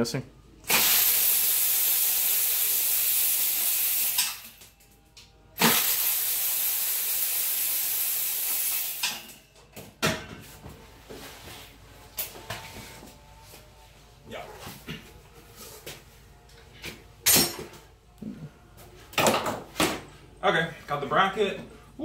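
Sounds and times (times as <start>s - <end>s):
loud steady hiss: 0.7s - 4.4s, 5.6s - 9.2s.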